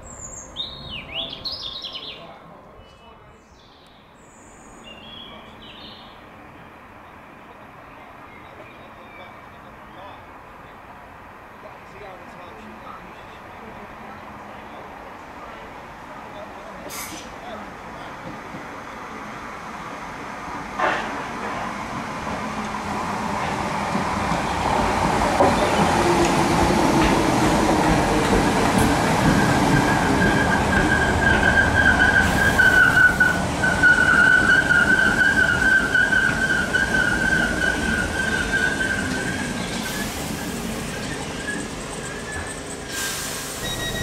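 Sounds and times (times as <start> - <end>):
electric train passing: 17.4 - 44.0
high-pitched whine: 43.6 - 44.0.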